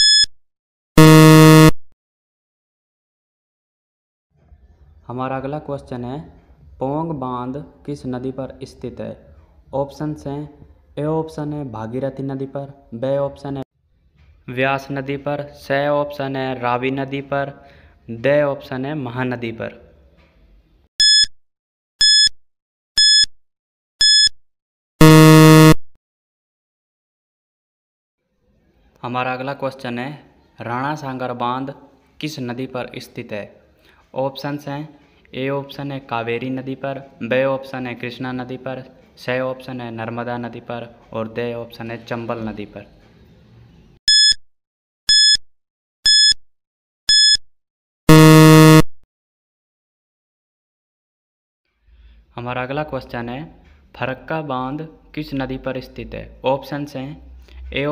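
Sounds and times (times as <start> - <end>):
low buzzer tone: 0.0 - 0.3, 1.0 - 1.8, 24.0 - 24.3, 25.0 - 25.9, 44.1 - 44.4, 45.1 - 45.4, 46.1 - 46.4, 47.1 - 47.4, 48.1 - 48.9
short high-pitched beeps: 0.0 - 0.3, 1.0 - 1.8, 21.0 - 21.3, 22.0 - 22.4, 23.0 - 23.3, 24.0 - 24.4, 25.0 - 25.8, 44.1 - 44.4, 45.1 - 45.4, 46.0 - 46.4, 47.1 - 47.4, 48.1 - 48.9.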